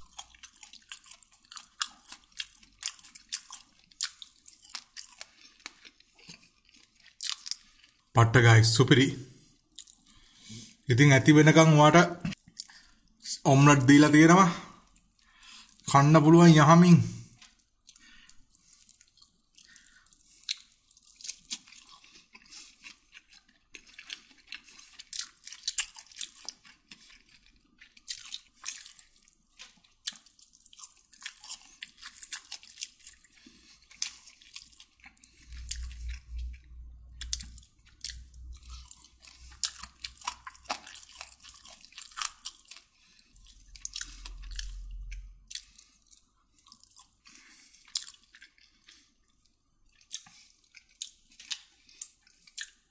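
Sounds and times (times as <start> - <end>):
person chewing: 0.0 - 8.1, 9.2 - 10.9, 12.2 - 13.4, 14.1 - 16.4, 17.1 - 52.9
low rumble: 35.5 - 37.6.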